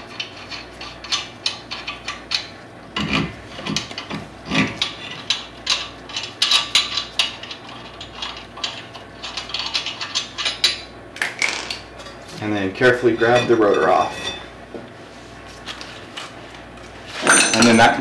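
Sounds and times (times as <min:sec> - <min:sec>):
metal lug nuts clicking and scraping: 0:00.0 - 0:12.2.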